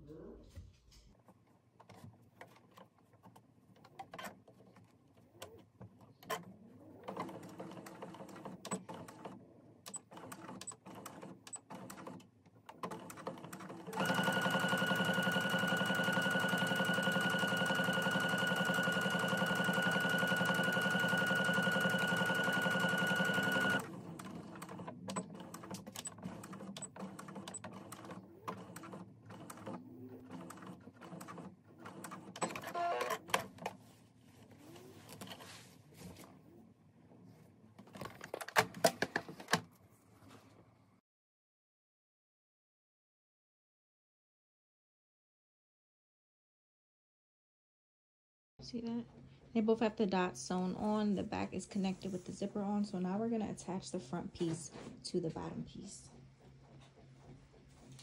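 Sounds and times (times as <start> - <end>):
sewing machine stitching: 6.2 - 33.7.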